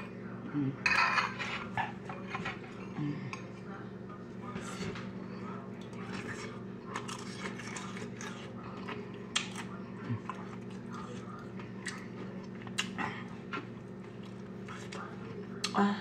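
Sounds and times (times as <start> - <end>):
chewing and crunching chips: 4.4 - 15.8.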